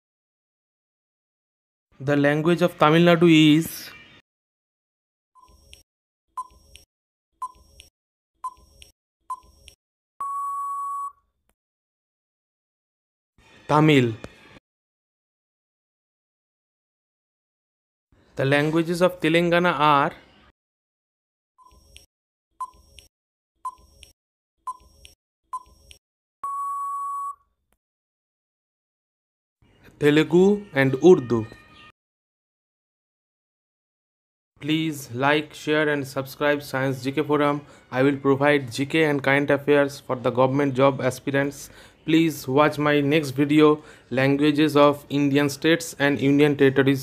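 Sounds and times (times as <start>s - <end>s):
countdown timer beeps: 6.4s - 6.8s, 7.4s - 11.2s, 24.7s - 27.4s.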